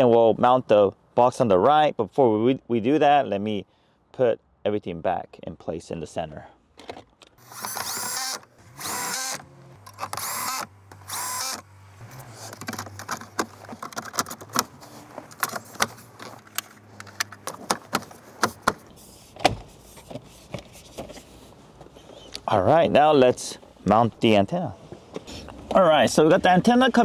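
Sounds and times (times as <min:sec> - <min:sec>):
electric screwdriver whirring: 0:07.4 - 0:12.8.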